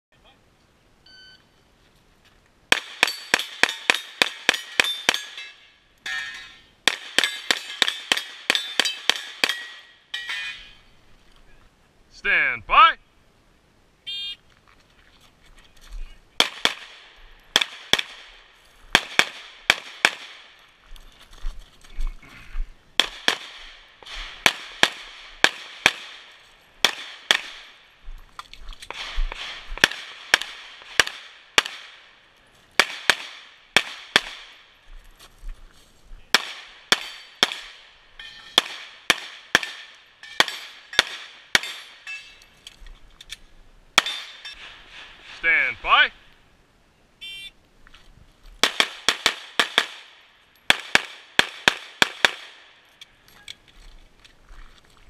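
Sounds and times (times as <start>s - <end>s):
shot timer beep: 1.1s - 1.4s
pistol shots: 6.8s - 9.8s, 16.4s - 20.5s, 23.0s - 27.8s, 28.9s - 32.1s, 32.8s - 34.6s, 36.3s - 37.9s, 38.6s - 42.0s, 48.6s - 52.6s.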